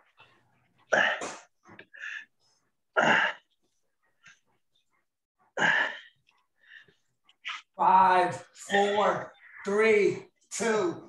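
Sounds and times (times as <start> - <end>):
person breathing hard: 0.9 - 3.6.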